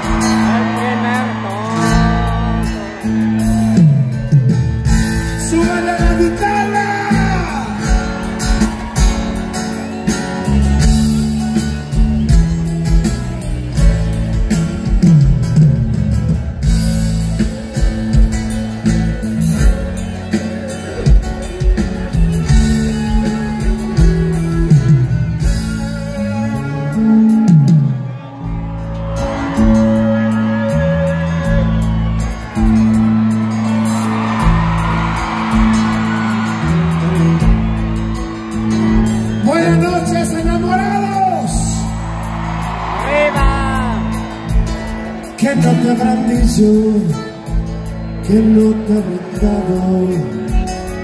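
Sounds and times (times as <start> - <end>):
live band music: 0.0 - 51.0
steady bass line: 0.0 - 51.0
person singing: 0.1 - 3.5.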